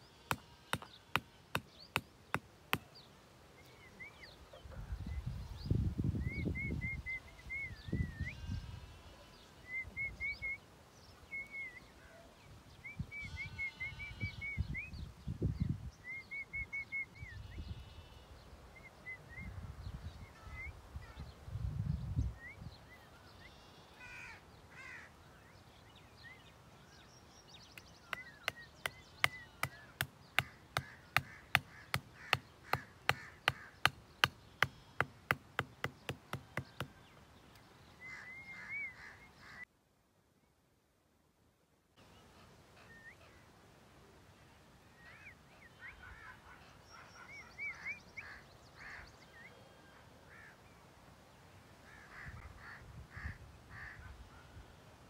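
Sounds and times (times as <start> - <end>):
birds calling: 0.0 - 5.4, 6.3 - 15.0, 23.0 - 39.7, 44.9 - 50.8
hammer tapping wooden stake: 0.3 - 2.9, 27.8 - 37.0.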